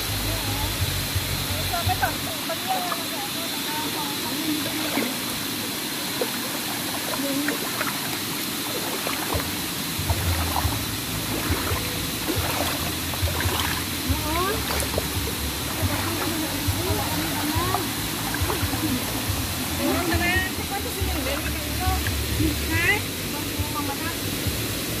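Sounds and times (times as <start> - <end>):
stream water running: 0.0 - 25.0
footsteps splashing through water: 6.0 - 20.3.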